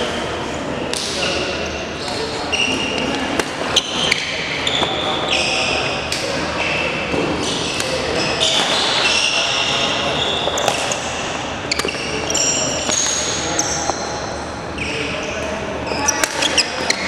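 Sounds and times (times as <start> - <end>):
shoes squeaking on wooden floor: 3.8 - 5.8, 6.6 - 14.0.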